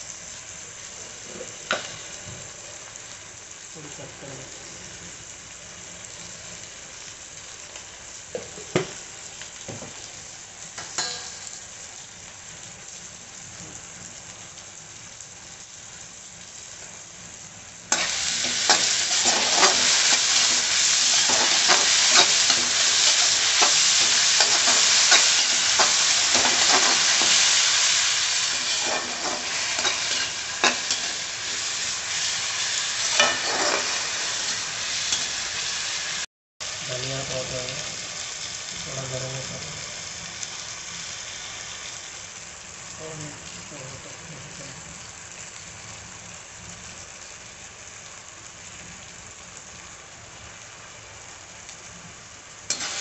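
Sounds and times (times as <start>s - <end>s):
masala sizzling in a pan: 0.0s - 53.0s
spatula stirring and scraping pan: 17.9s - 35.7s, 52.7s - 53.0s.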